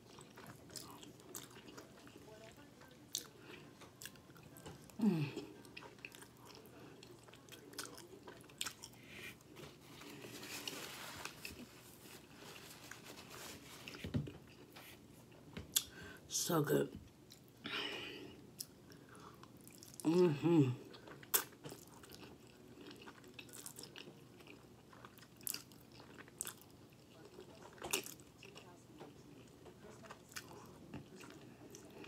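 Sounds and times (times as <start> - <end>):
chewing with wet mouth clicks: 0.1 - 4.9, 5.6 - 9.0, 20.9 - 31.9.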